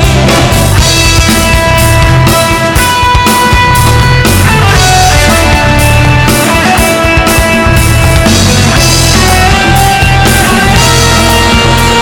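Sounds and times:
loud rock music: 0:00.0 - 0:12.0.

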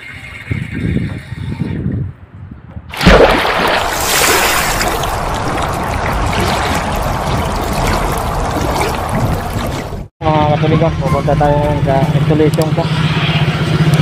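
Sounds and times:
water rushing and splashing: 0:02.9 - 0:10.1.

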